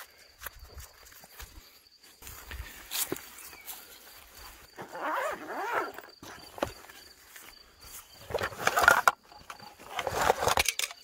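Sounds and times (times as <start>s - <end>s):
zipper being pulled open: 4.8s - 6.1s.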